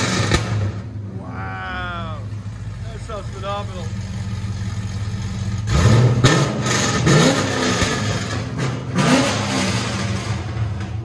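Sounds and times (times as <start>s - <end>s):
car engine idling and revving: 0.0s - 11.0s.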